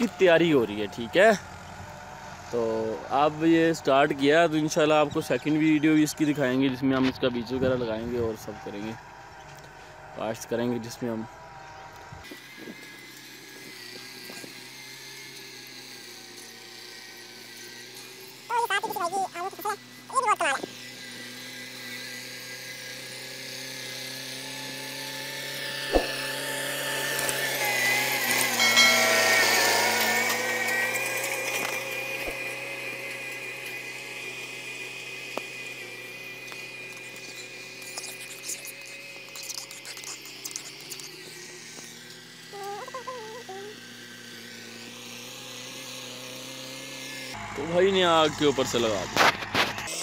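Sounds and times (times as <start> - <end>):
tractor engine running: 0.0 - 6.6
distant tractor engine droning: 0.0 - 14.4, 40.8 - 49.9.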